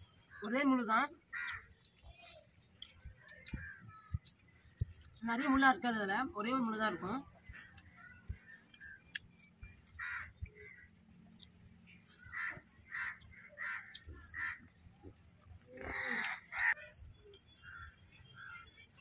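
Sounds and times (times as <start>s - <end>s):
crows cawing: 1.2s - 1.8s, 9.9s - 11.0s, 12.2s - 14.7s, 15.8s - 16.9s.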